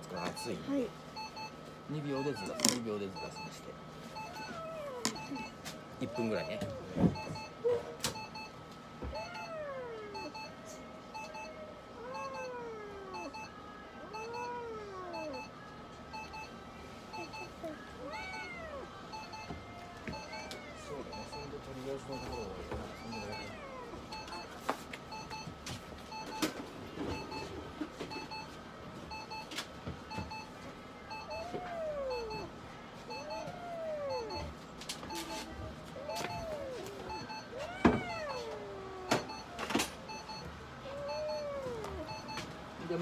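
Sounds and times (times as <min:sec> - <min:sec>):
electronic beeping: 0:02.2 - 0:03.6, 0:20.1 - 0:24.5, 0:35.1 - 0:39.5
cat meowing: 0:18.0 - 0:18.9, 0:33.1 - 0:34.4, 0:36.0 - 0:39.6, 0:40.8 - 0:42.2.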